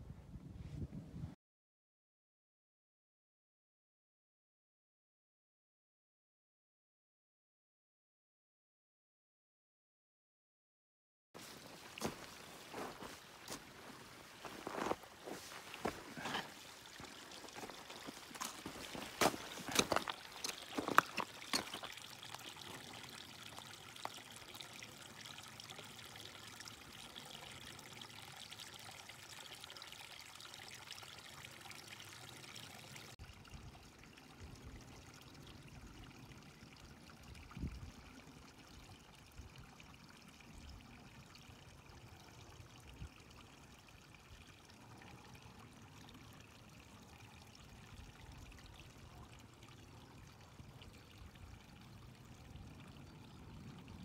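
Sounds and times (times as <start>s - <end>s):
stream trickling among rocks: 11.4s - 54.0s.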